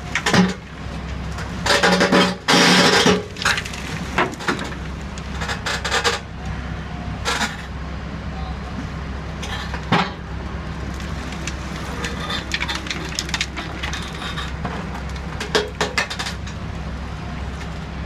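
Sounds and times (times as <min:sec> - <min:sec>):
low engine drone: 0:00.0 - 0:18.0
concrete cracking and crunching: 0:01.4 - 0:06.3, 0:09.4 - 0:16.6.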